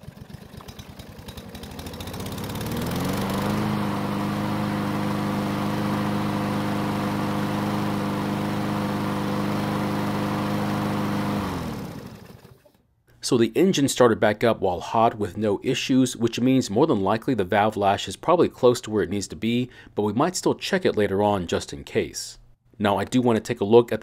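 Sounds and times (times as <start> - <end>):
lawn mower engine running: 0.0 - 12.8.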